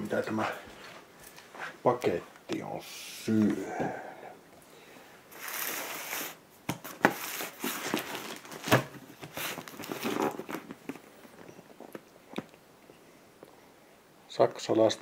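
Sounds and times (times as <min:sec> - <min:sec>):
cardboard rustling and scraping: 0:05.4 - 0:11.4.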